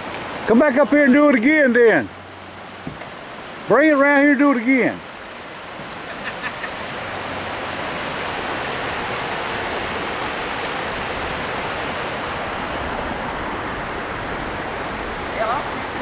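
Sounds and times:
water rushing over rocks: 0:00.0 - 0:16.0.

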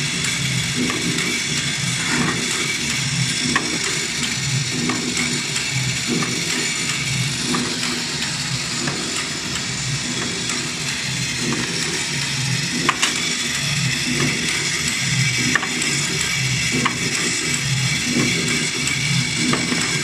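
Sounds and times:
sharp machine clicks: 0:00.0 - 0:20.0
thread rolling machine clatter: 0:00.0 - 0:20.0.

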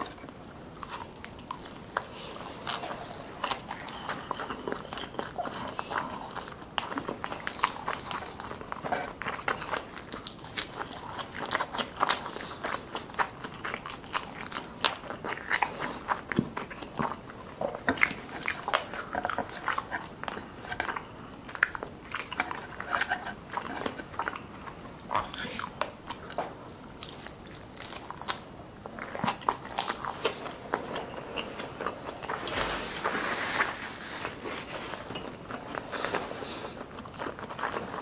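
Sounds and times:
person chewing crunchy food: 0:00.0 - 0:38.0.

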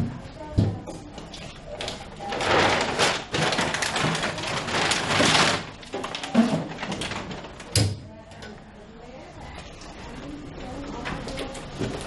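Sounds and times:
rustling and crinkling: 0:00.0 - 0:07.8.

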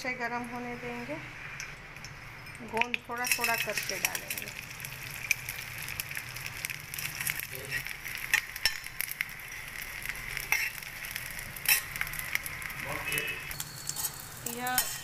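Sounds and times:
gum frying in hot ghee: 0:00.2 - 0:15.0
steel spoon scraping pan: 0:13.6 - 0:15.0.

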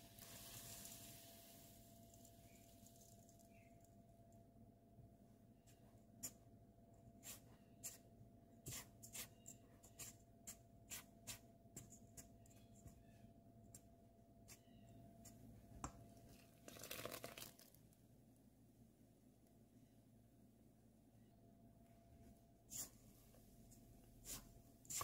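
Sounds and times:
liquid pouring: 0:00.2 - 0:03.2, 0:16.6 - 0:17.8.

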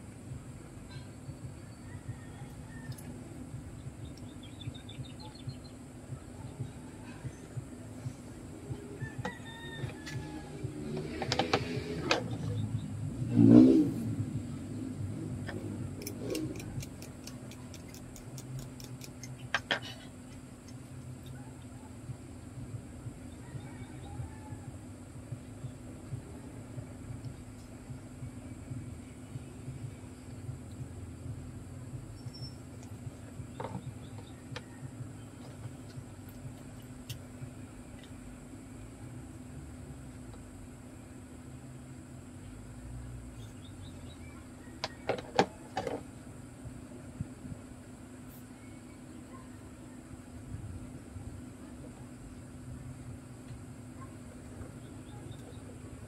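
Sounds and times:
faint steady hum: 0:00.0 - 0:56.0
ratcheting screwdriver clicking: 0:16.0 - 0:19.4.

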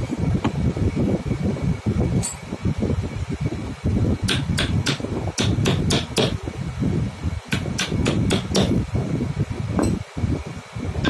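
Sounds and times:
steady low rumble: 0:00.0 - 0:11.0
hammer tapping metal punch: 0:04.3 - 0:06.4, 0:07.5 - 0:08.8.

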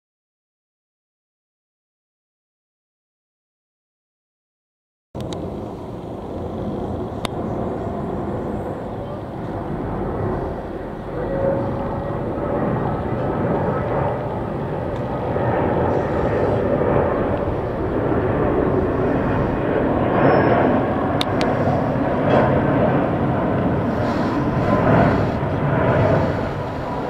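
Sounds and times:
faint sharp clicks: 0:05.2 - 0:05.4
jet airliner rumble overhead: 0:05.2 - 0:27.0.

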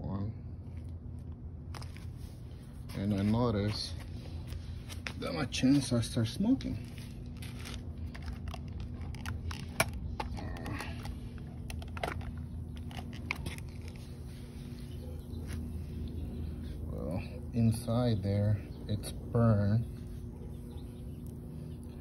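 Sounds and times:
low hum: 0:00.0 - 0:22.0
phone handling clicks and rustles: 0:07.3 - 0:14.0.

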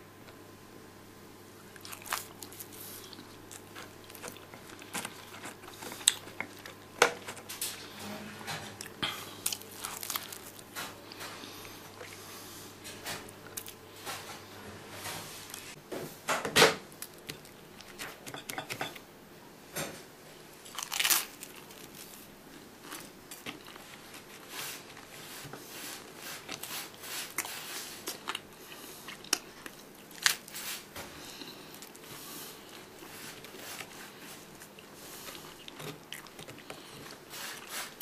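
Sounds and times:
crunching and chewing toast: 0:01.7 - 0:07.9, 0:08.7 - 0:12.2, 0:20.6 - 0:25.1, 0:25.9 - 0:38.0.

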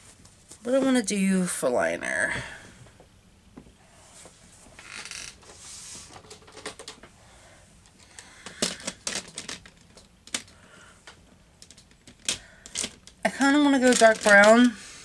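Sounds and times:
plastic cases clicking and clattering: 0:06.2 - 0:07.1, 0:07.9 - 0:13.2, 0:13.8 - 0:14.7.

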